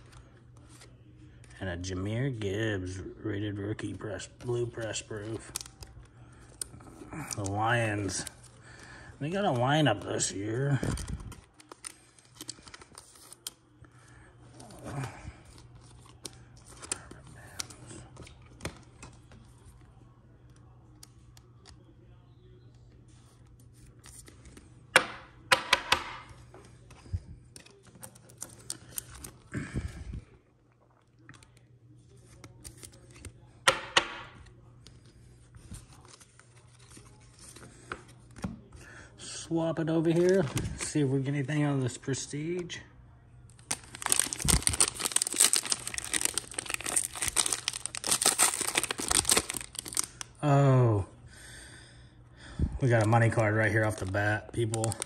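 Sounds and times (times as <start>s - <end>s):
cards rustling: 0.0s - 1.6s, 2.9s - 21.9s, 23.1s - 24.8s, 26.2s - 29.9s, 31.2s - 33.6s, 34.4s - 38.8s, 39.8s - 42.7s, 43.5s - 50.3s, 52.8s - 55.0s
wrapper crinkling and tearing: 4.7s - 13.6s, 43.5s - 50.3s, 52.9s - 55.0s.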